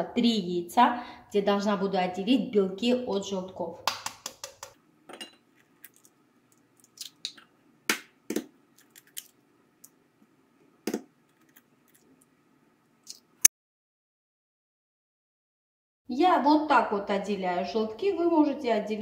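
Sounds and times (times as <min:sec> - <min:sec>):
eggs cracking on glass: 0:05.6 - 0:10.0.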